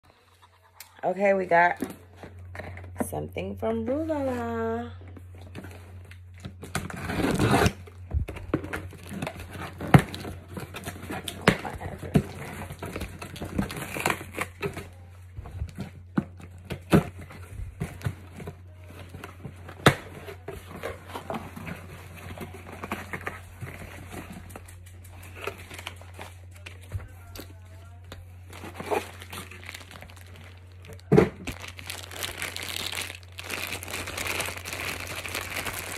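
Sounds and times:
packing material rustling: 27.9 - 35.9.

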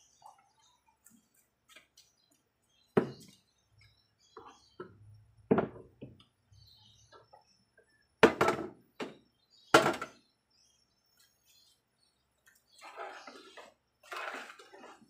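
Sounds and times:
kitchenware knocking on hard surfaces: 5.5 - 6.2.

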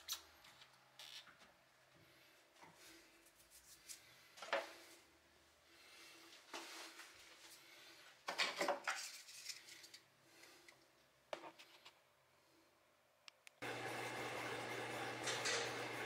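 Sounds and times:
plastic pipes and can clattering: 8.3 - 10.0.

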